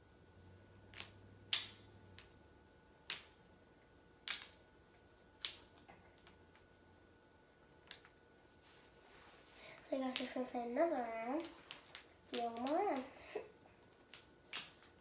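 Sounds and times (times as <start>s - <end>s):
wooden blocks clacking: 0.8s - 2.4s, 3.0s - 3.5s, 4.2s - 4.6s, 5.4s - 6.7s, 7.8s - 8.2s, 11.2s - 15.0s.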